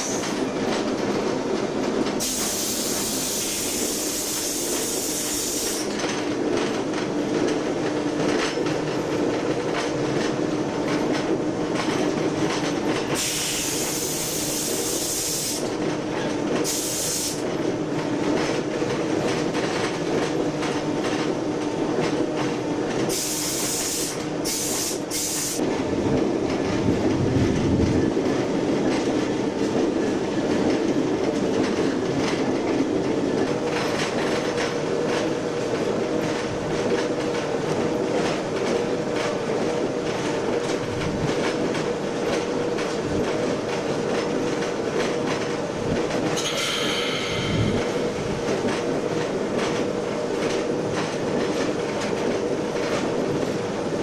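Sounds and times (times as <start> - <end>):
wheels clicking over rail joints: 5.4 - 25.2.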